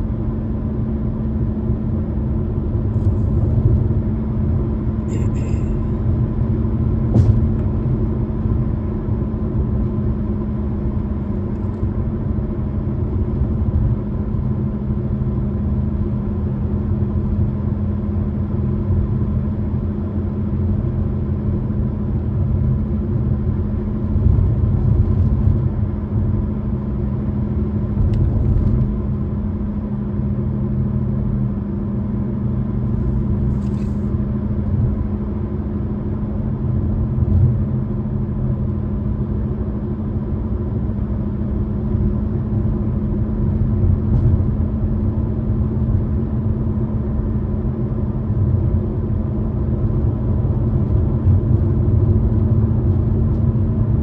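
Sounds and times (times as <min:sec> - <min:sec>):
car interior road noise: 0:00.0 - 0:54.0.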